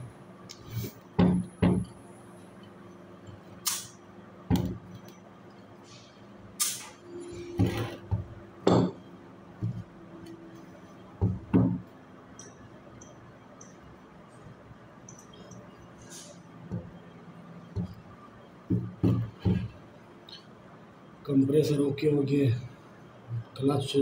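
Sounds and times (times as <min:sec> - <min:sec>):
faint steady hum: 0:00.0 - 0:24.0
metal knocking on wooden workbench: 0:01.2 - 0:01.9, 0:07.5 - 0:09.0, 0:11.2 - 0:11.9.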